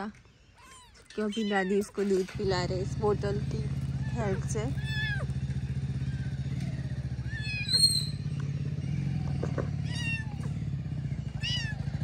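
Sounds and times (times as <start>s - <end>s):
kitten mewing: 9.6s - 10.6s, 11.3s - 11.9s.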